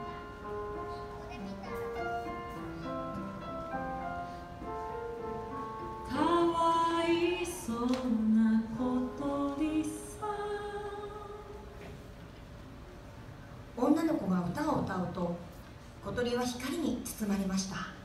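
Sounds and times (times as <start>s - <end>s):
woman singing: 6.0s - 11.7s.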